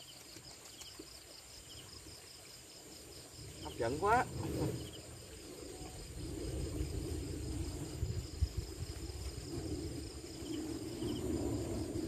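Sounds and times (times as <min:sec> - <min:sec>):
crickets chirping: 0:00.0 - 0:12.0
high insect tone: 0:00.0 - 0:12.0
low rumble: 0:04.2 - 0:12.0.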